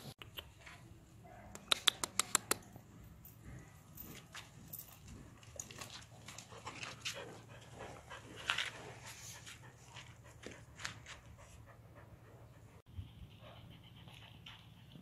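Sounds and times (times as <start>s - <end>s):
sharp click: 1.5s - 2.7s
dog panting: 5.2s - 15.0s.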